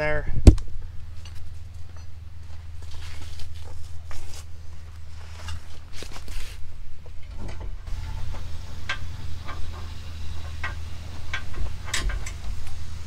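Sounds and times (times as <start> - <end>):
steady low hum: 0.0 - 13.0
metallic clicks and knocks: 7.2 - 12.8.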